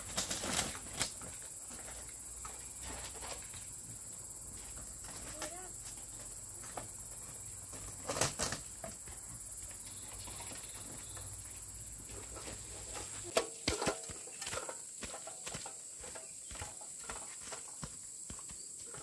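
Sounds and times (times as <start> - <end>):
insects chirping: 0.0 - 19.0.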